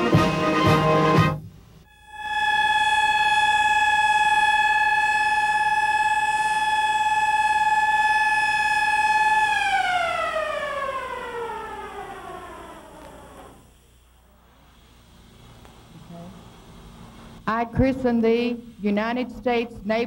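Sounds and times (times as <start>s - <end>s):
siren winding down: 1.9s - 13.7s.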